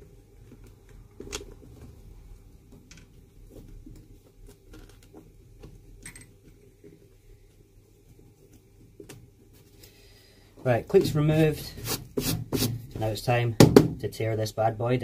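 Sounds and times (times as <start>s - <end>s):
fingers scratching leather shoe: 11.8s - 12.8s.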